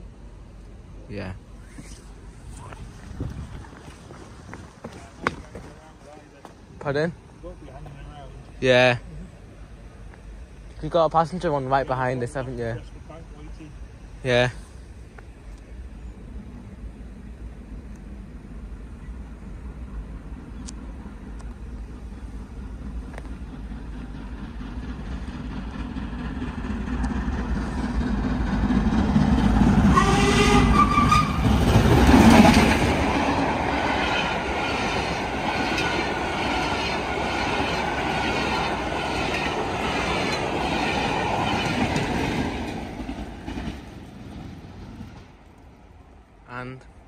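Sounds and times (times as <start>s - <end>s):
diesel locomotive passing: 0.0s - 47.0s
train wheels clattering on rails: 22.5s - 45.3s
steam locomotive whistle: 29.8s - 31.6s.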